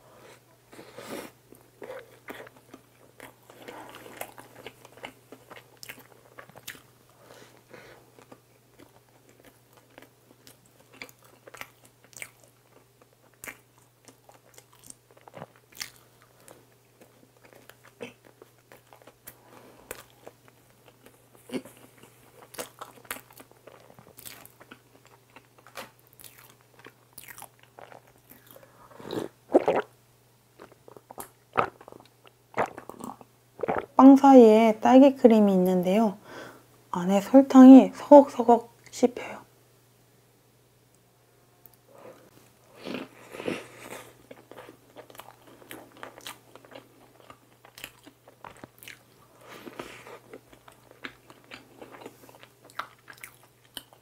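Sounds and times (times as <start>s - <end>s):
chewing soft bread: 1.2s - 29.8s, 41.7s - 54.0s.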